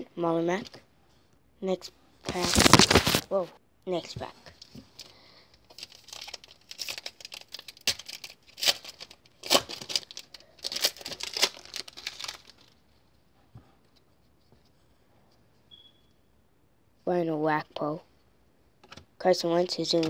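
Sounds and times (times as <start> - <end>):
wrapper tearing and crinkling: 2.3 - 3.3, 5.7 - 12.8.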